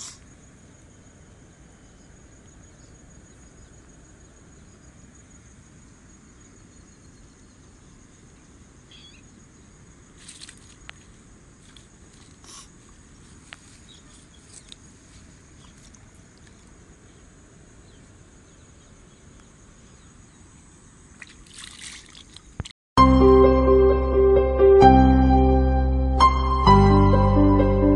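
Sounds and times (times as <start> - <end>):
hands splashing in pond water: 10.2 - 12.6, 21.1 - 22.7
light rustles: 10.2 - 16.8
loud music: 23.0 - 27.9.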